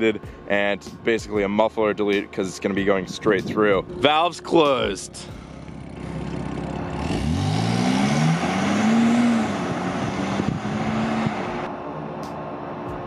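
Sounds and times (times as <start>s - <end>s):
car engine accelerating hard: 5.1s - 13.0s.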